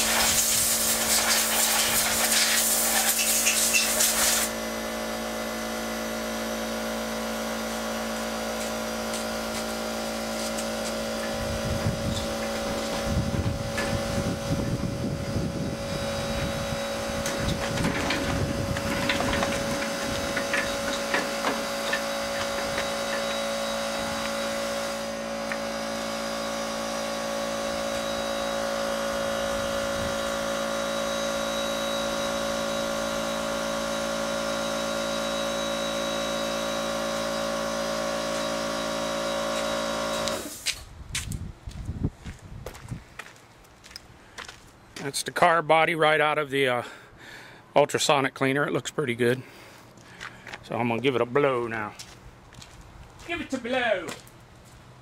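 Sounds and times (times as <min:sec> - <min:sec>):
compressed air blasting from hose: 0:00.0 - 0:04.6
steady machine hum: 0:00.0 - 0:41.8
tools and parts clattering: 0:17.5 - 0:23.2.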